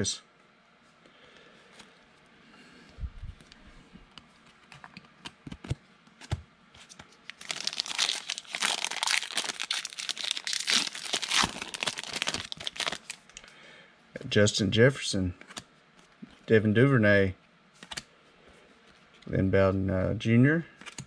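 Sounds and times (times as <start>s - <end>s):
foil wrapper tearing and crinkling: 7.3s - 13.4s.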